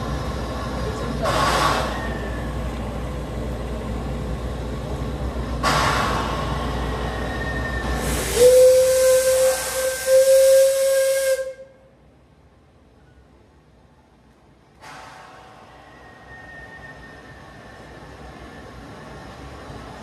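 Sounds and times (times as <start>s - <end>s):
steam locomotive hissing: 0.0s - 3.0s, 5.4s - 11.8s
steam whistle blast: 7.4s - 11.8s.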